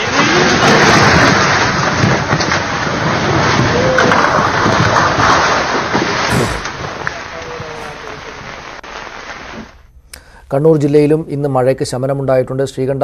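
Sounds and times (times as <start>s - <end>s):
rumbling crash of falling masonry: 0.0s - 9.6s.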